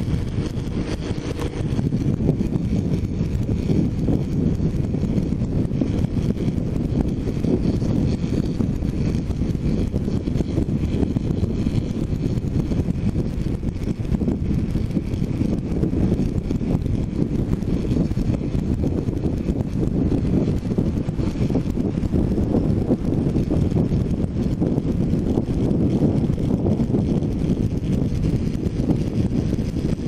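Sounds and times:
wind buffeting on helmet: 0.0s - 30.0s.

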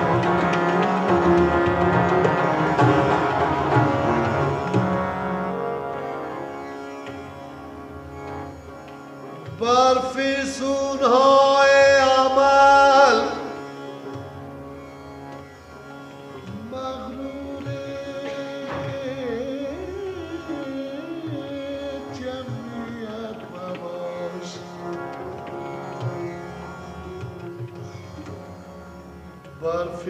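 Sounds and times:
tabla: 0.0s - 30.0s.

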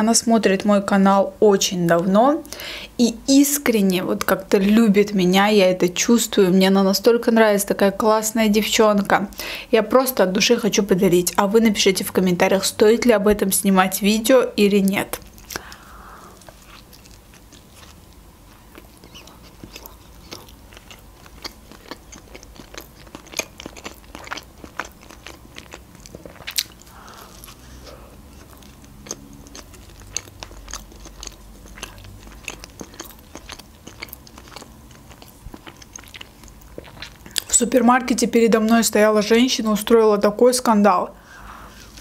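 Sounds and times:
person chewing food: 15.2s - 37.6s.

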